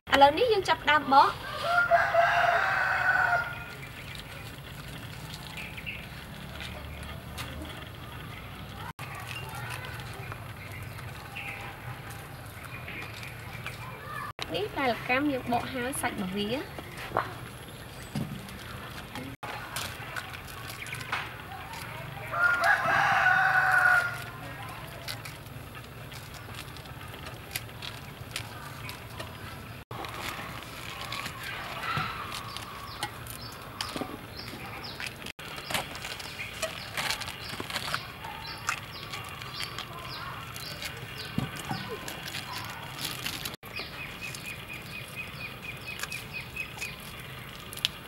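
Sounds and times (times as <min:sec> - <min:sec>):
rooster crowing: 0:01.4 - 0:03.7, 0:22.3 - 0:24.4.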